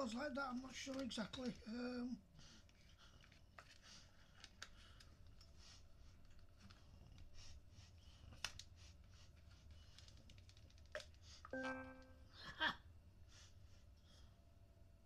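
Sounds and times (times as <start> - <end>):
plastic parts clicking: 0.7 - 1.7.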